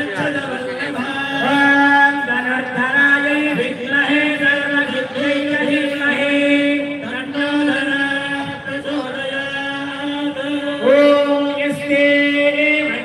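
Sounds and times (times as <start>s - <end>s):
men chanting devotional song: 0.0s - 13.0s.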